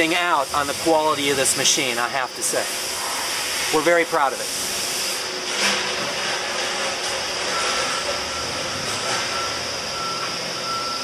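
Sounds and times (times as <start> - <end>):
machinery hiss: 0.0 - 8.3
machinery hum: 0.0 - 11.0.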